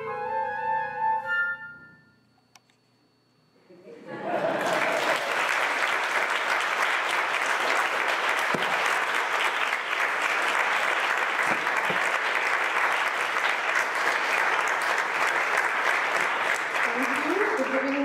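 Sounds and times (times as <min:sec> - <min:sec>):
audience applauding: 0:04.3 - 0:18.0.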